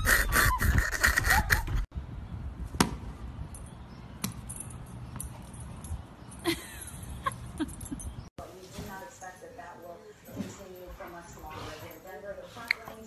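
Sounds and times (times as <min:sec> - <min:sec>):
tennis ball bouncing on asphalt: 0:02.7 - 0:03.2, 0:04.2 - 0:04.5.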